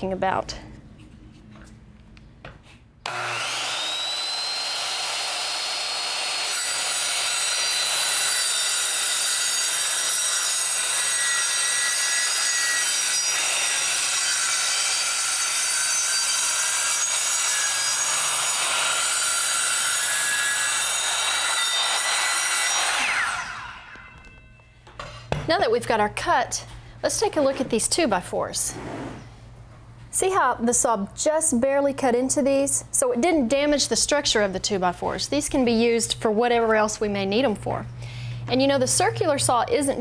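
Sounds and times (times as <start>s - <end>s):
circular saw cutting wood: 3.0s - 24.3s.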